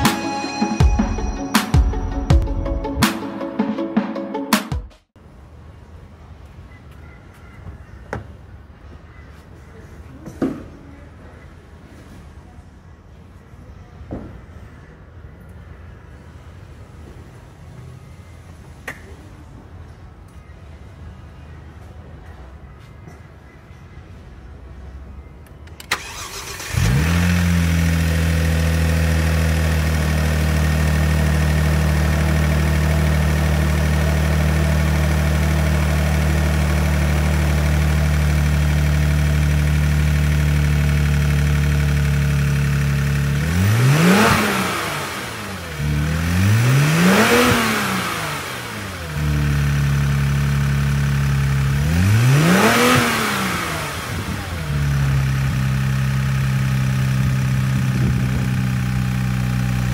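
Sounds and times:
car engine starting and idling: 25.3 - 59.9
engine revving: 25.9 - 59.9.

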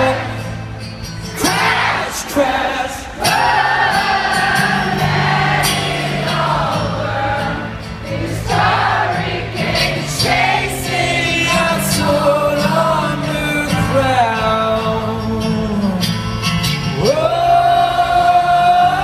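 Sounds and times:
acoustic guitar strumming chords: 0.0 - 19.0
crowd singing along: 0.0 - 19.0.

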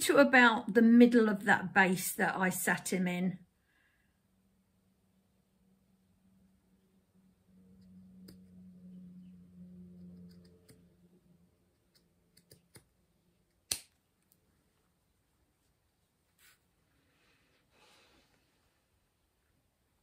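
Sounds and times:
faint low hum: 3.3 - 20.0
scissors snipping: 11.8 - 14.0.

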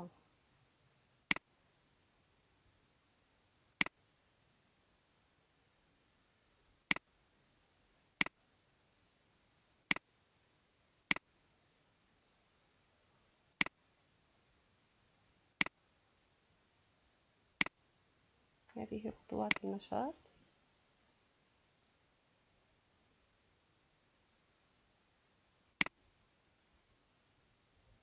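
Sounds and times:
computer mouse clicking: 19.5 - 19.7.

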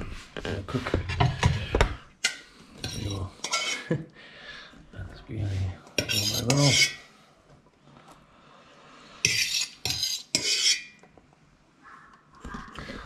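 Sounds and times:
fork scraping on a plate: 2.3 - 3.9, 6.0 - 7.1, 9.2 - 11.0.

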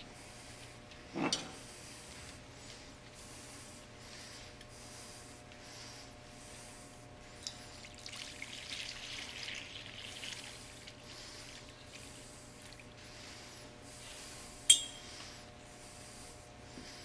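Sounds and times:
water pouring into a bowl: 7.7 - 11.7
sharp metal clink: 14.7 - 15.0.

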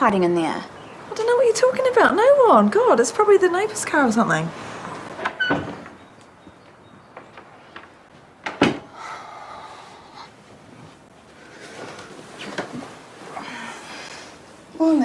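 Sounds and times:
light footsteps: 4.7 - 8.4
door shutting with sharp knock: 8.4 - 8.9.

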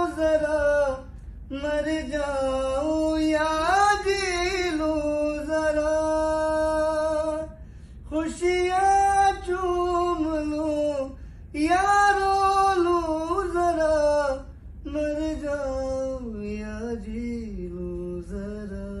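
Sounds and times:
man singing unaccompanied: 0.0 - 19.0
singer breathing: 7.6 - 8.1, 11.1 - 11.6.

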